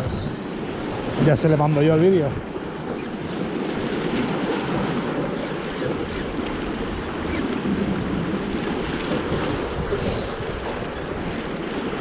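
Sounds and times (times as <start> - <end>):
waves breaking against rocks: 0.0 - 12.0
wind buffeting microphone: 0.0 - 12.0.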